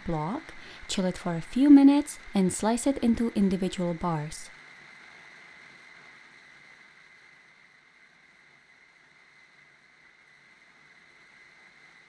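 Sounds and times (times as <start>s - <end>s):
faint steady hiss: 0.0s - 12.0s
thin high hum: 0.0s - 12.0s.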